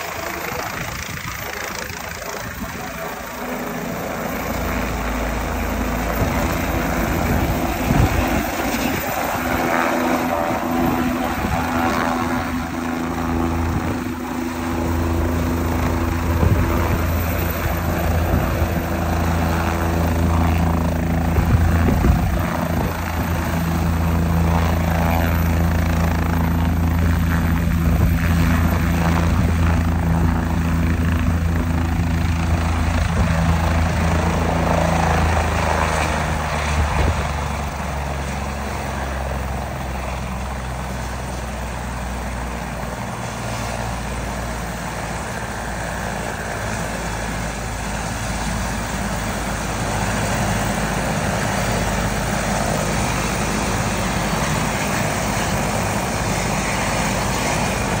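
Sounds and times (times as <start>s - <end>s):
helicopter rotor and turbine drone: 0.0s - 58.0s.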